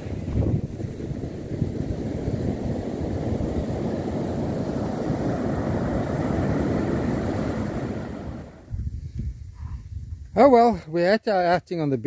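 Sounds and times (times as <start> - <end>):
surf breaking on beach: 0.0 - 8.7
wind buffeting microphone: 0.0 - 10.9.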